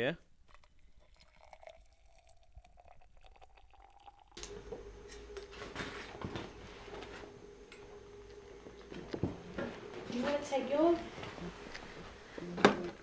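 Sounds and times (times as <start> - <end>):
water trickling into flask: 0.4 - 4.4
steady hum: 4.4 - 13.0.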